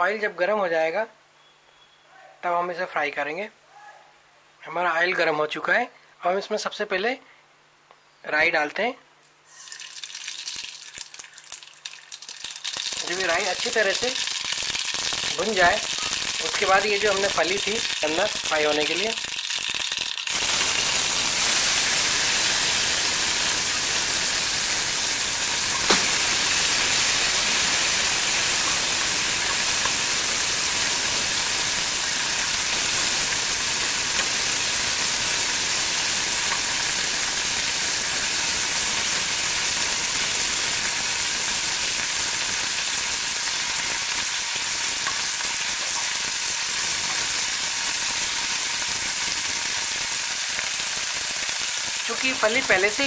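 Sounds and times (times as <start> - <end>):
food sizzling in oil: 9.4 - 53.0.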